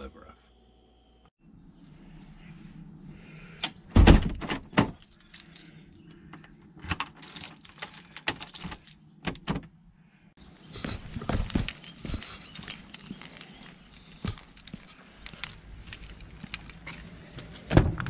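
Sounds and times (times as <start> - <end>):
keys jangling: 5.0 - 6.2, 6.8 - 9.4, 11.0 - 17.7.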